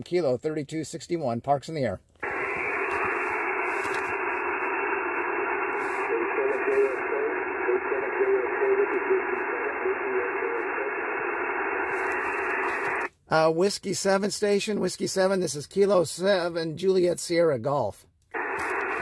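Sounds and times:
garbled radio voice: 2.2 - 13.1
radio band noise hiss: 2.2 - 13.1, 18.4 - 19.0.

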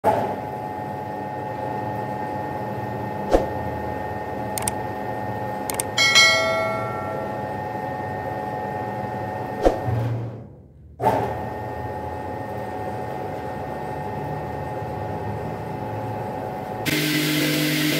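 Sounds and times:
mouse clicks: 5.7 - 6.0
notification bell ding: 5.7 - 7.8.

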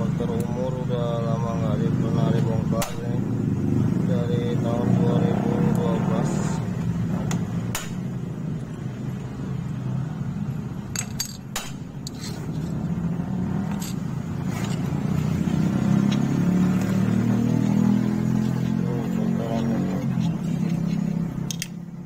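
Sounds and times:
engine running: 0.0 - 22.0
metal engine parts clinking: 10.8 - 13.0, 13.6 - 15.0, 20.3 - 21.8.

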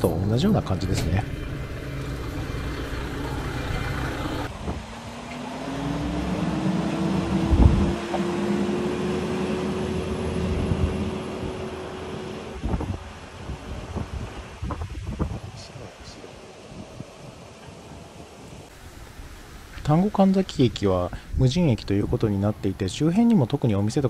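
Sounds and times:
diesel railcar engine pulling away: 0.0 - 14.6.

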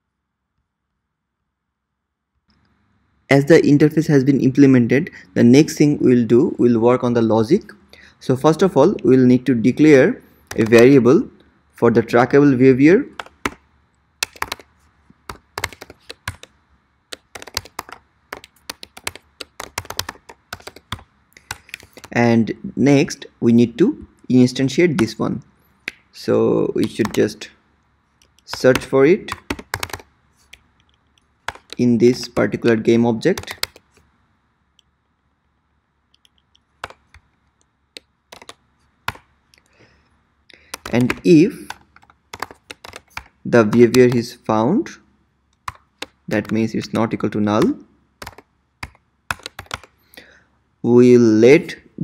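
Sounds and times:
keyboard typing clicks: 10.4 - 11.0, 13.2 - 13.6, 14.2 - 14.7, 15.3 - 22.2, 26.8 - 27.3, 28.2 - 32.6, 33.4 - 34.1, 36.1 - 39.6, 40.6 - 44.2, 45.6 - 50.0.

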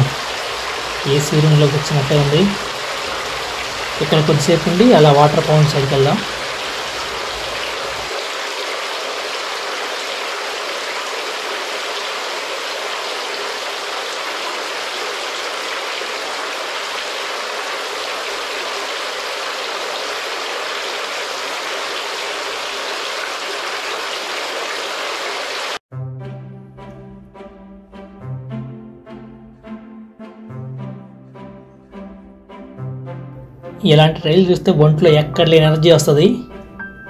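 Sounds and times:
fountain water splashing: 0.0 - 25.8
orchestral music with brass: 25.9 - 37.0.

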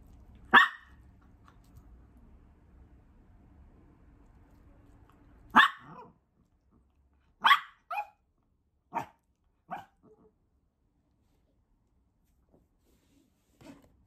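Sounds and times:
small dog barking: 0.5 - 1.0, 5.5 - 6.2, 7.4 - 8.2, 8.9 - 10.2.

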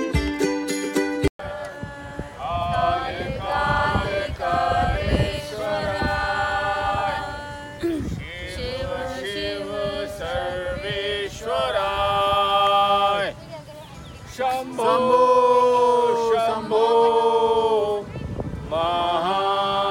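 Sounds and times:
men chanting in held notes: 14.4 - 17.9.

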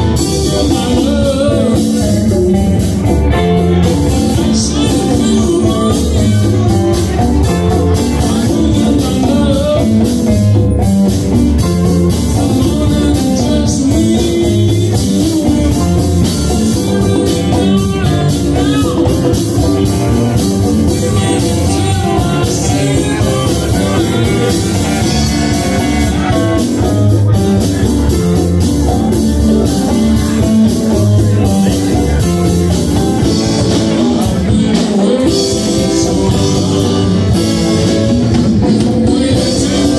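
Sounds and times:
live rock and blues band: 0.0 - 39.9
person singing: 0.0 - 39.9.

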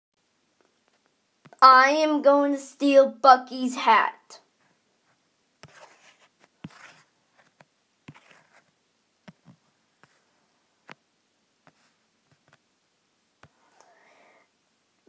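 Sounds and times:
faint clicks and taps: 0.6 - 1.6, 4.6 - 12.7.

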